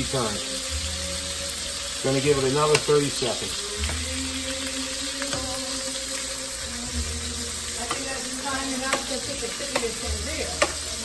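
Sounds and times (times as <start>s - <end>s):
shrimp sizzling in a frying pan: 0.0s - 11.0s
metal tongs clicking on cookware: 8.8s - 10.8s.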